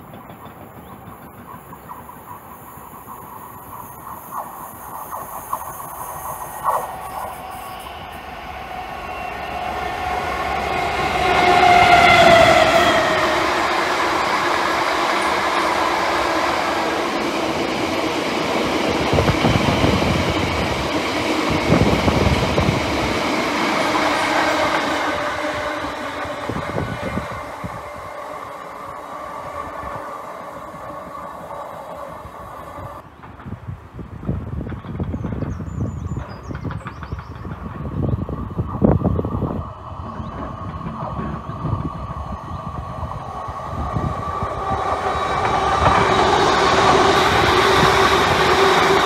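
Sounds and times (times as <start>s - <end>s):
diesel locomotive passing: 0.0s - 49.0s
freight wagons rumbling and clattering: 39.9s - 42.0s.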